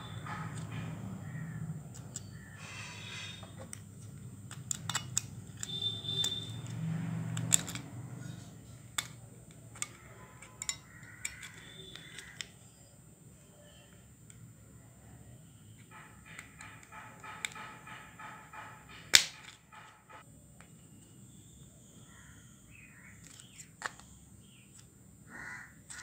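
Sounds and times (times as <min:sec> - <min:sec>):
metal clicking and scraping on plastic: 0:03.1 - 0:12.7, 0:15.8 - 0:20.2.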